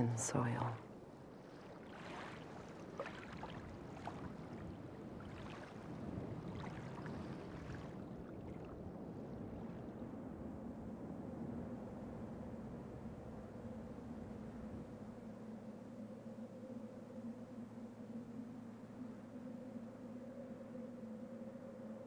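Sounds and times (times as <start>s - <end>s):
sea water lapping: 0.0s - 10.0s
low steady hum: 0.0s - 22.0s.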